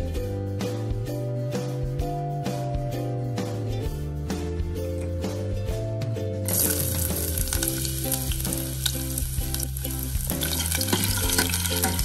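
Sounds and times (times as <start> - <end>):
garlic sizzling in hot oil: 6.5 - 12.0
metal ladle stirring: 10.4 - 12.0.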